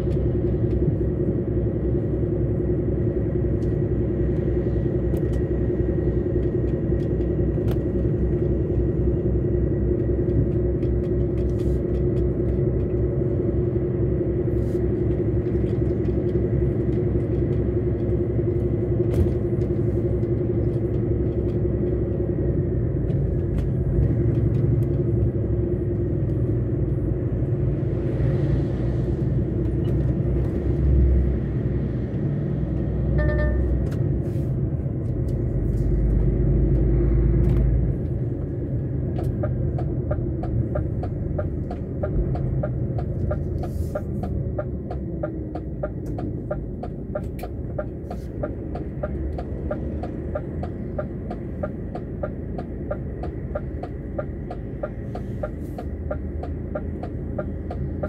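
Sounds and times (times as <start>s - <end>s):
road rumble: 0.0s - 58.0s
truck engine running: 0.0s - 58.0s
short beep: 33.2s - 33.8s
turn indicator ticking: 37.9s - 58.0s.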